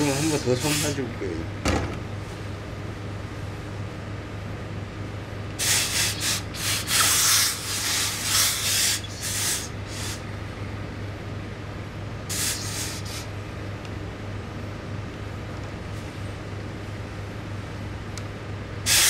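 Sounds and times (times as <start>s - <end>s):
iron rubbing over cloth: 0.0s - 1.0s
steam iron hissing: 0.0s - 1.0s, 5.6s - 10.2s, 12.3s - 13.3s.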